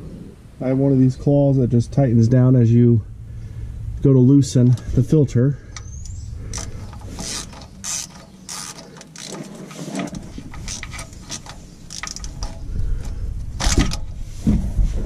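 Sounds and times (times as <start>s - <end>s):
socket ratchet clicking: 5.7s - 9.4s, 10.5s - 12.6s.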